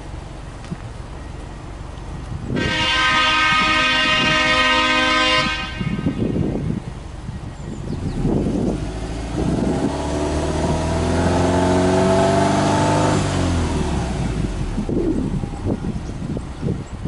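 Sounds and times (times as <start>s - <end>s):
car engine idling and revving: 0.0s - 17.0s
car horn blast: 2.5s - 6.7s.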